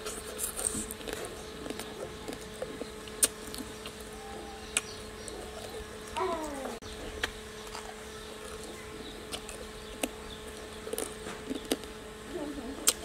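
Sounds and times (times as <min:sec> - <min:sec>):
beetle shells cracking and crunching: 0:00.0 - 0:04.1, 0:07.2 - 0:12.0
faint steady hum: 0:00.0 - 0:13.0.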